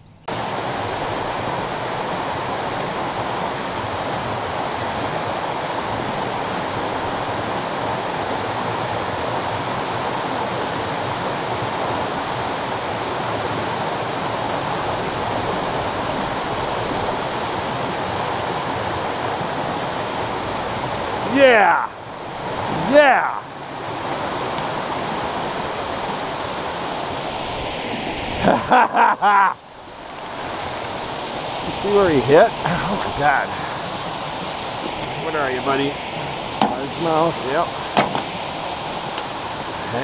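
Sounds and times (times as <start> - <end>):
river water rushing over dam: 0.3 - 40.0.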